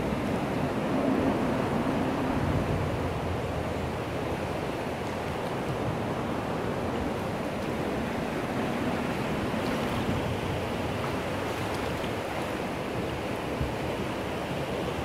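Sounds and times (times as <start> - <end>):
river rushing over a riffle: 0.0 - 15.0.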